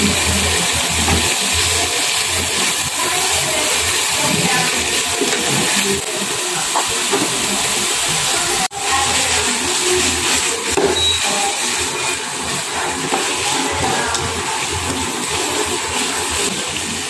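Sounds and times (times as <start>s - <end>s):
fish sizzling in hot oil: 0.0s - 17.0s
plastic spatulas stirring in wok: 12.3s - 17.0s.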